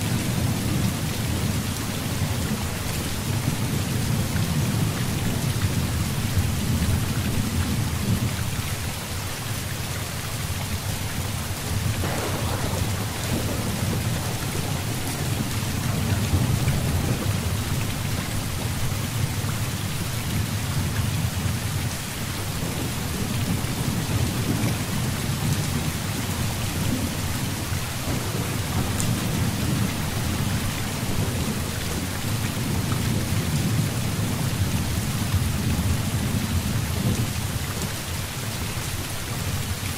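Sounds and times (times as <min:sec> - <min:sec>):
heavy rain: 0:00.0 - 0:39.9
low thunder rumbling: 0:11.5 - 0:21.8, 0:22.4 - 0:37.6.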